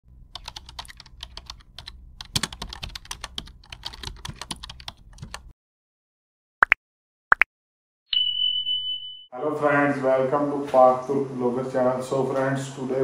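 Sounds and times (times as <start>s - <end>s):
low steady hum: 0.1s - 3.9s.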